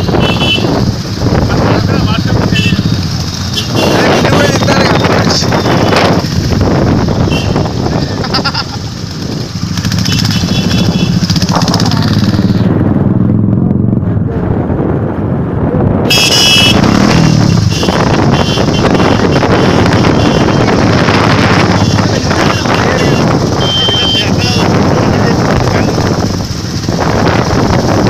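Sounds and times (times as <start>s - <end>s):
motorcycle engines running: 0.0s - 28.0s
high-pitched honk: 16.1s - 20.8s.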